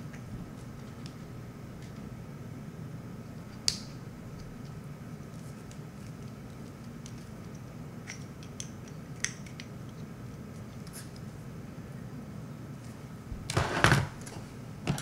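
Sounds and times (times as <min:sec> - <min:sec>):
faint steady hum: 0:00.0 - 0:15.0.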